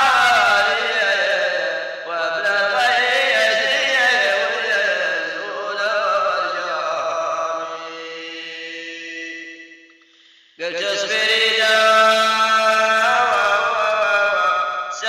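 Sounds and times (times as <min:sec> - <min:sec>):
person singing ornamented melody: 0:00.0 - 0:09.6.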